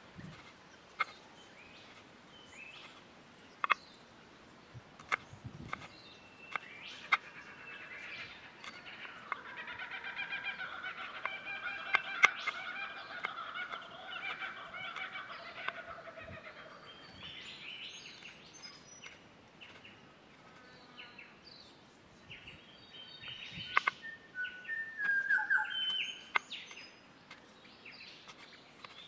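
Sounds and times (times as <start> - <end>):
chattering bird call: 6.5 - 17.3, 23.4 - 24.1.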